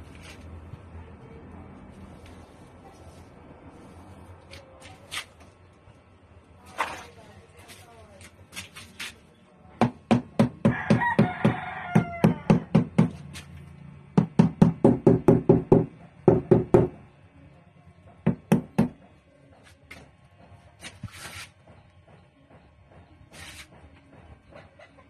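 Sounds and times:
rooster crowing: 10.7s - 12.7s.

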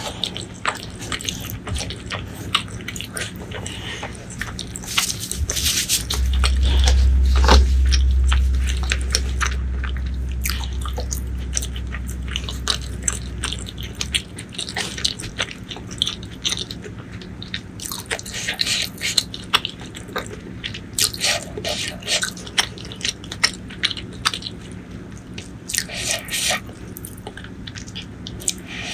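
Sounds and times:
chewing with wet mouth clicks: 0.0s - 6.6s, 8.0s - 28.7s
low rumble: 4.0s - 16.6s.

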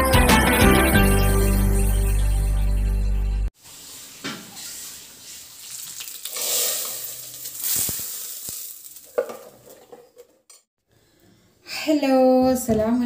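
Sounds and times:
food sizzling in hot oil: 3.6s - 9.7s.

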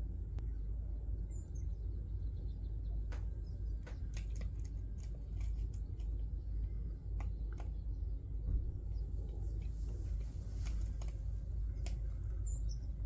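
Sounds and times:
steady low rumble: 0.0s - 13.0s
sparrows chirping: 0.4s - 13.0s.

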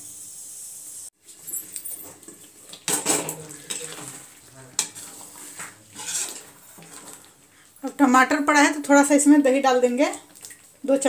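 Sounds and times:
food sizzling: 0.0s - 11.0s
metal spatula scraping pan: 2.0s - 7.4s.

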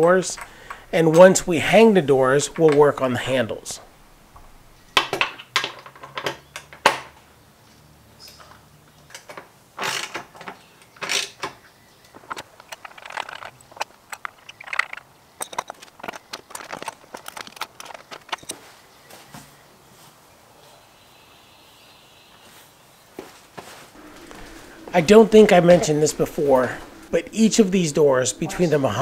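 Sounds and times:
metal bolts and nuts clinking: 12.2s - 18.6s
wrench tightening nuts: 12.3s - 18.5s.

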